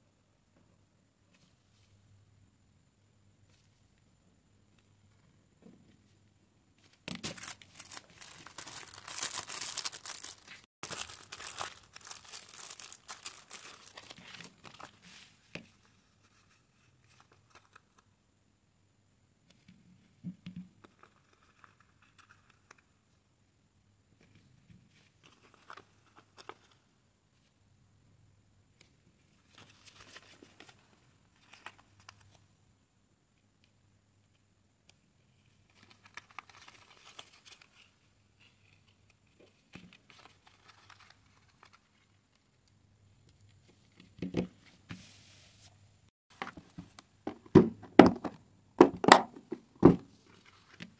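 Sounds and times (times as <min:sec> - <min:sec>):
plastic case rustle: 0:06.8 - 0:15.0
sticker sheet crinkling: 0:07.1 - 0:15.2, 0:35.7 - 0:37.9, 0:40.0 - 0:42.0.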